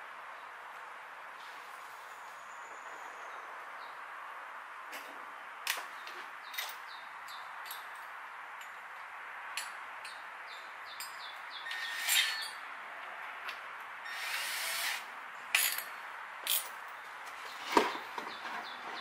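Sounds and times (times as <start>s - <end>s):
small birds chirping: 5.8s - 8.0s, 10.1s - 12.7s, 16.9s - 19.0s.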